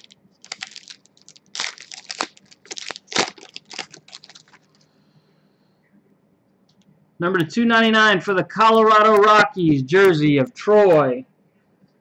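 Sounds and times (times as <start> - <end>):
foil wrapper tearing and crinkling: 0.0 - 4.8.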